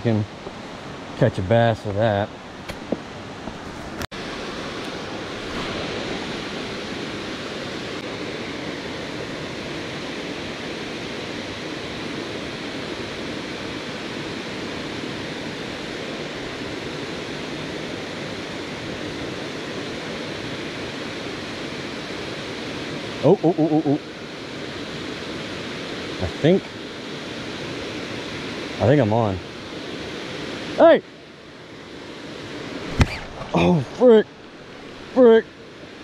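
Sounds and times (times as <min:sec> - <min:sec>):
waterfall rushing: 0:04.1 - 0:18.8.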